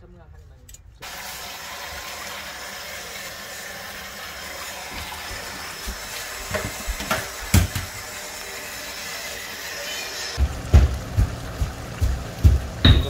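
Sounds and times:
food rinsed in plastic basin: 0:01.0 - 0:08.4
tap running into metal sink: 0:04.9 - 0:07.9.

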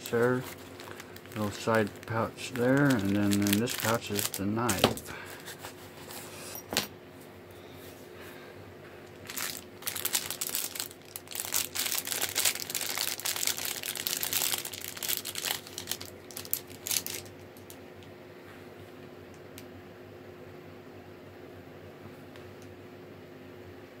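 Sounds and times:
plastic bag crinkling: 0:00.0 - 0:05.6, 0:09.1 - 0:17.7.

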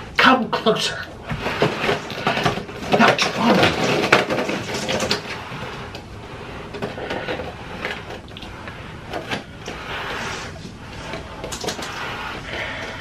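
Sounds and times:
cardboard boxes knocking and rustling: 0:01.2 - 0:05.8.

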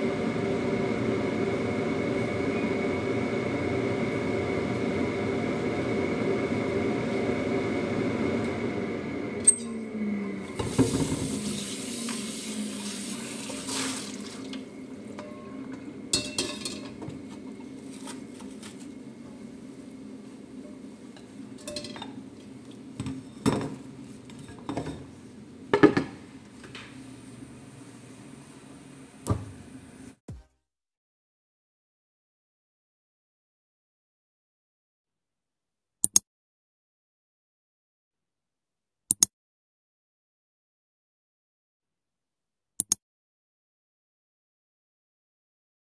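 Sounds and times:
gas stove humming drone: 0:00.0 - 0:30.2
rushing water: 0:11.2 - 0:14.6
metal wok and utensils clattering: 0:15.2 - 0:17.1, 0:21.6 - 0:22.2.

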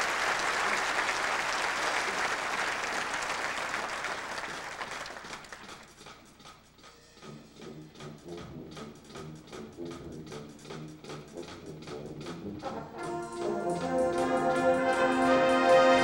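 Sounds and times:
audience applause: 0:00.0 - 0:05.9
drum and bugle corps playing: 0:08.0 - 0:16.0.

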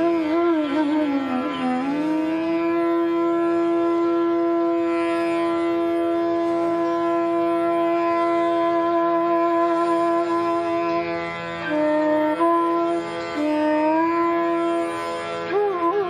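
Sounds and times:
bamboo flute long note: 0:00.0 - 0:16.0
soft drone: 0:00.0 - 0:16.0.

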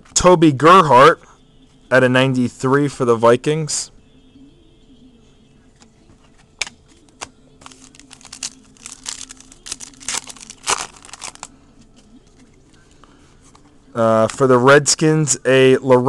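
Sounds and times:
wrapper snapping: 0:07.6 - 0:11.5
wrapper crinkling: 0:07.6 - 0:12.8.

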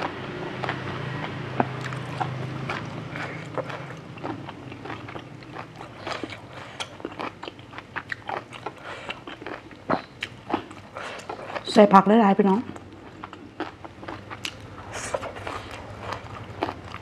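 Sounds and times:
wet chewing and crisp bites: 0:00.0 - 0:11.7, 0:12.7 - 0:17.0.

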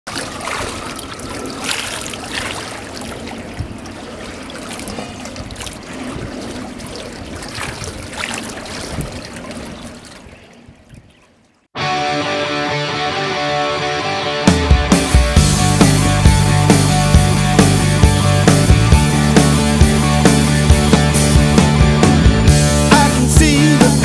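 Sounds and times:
water trickling and splashing: 0:00.1 - 0:11.8.

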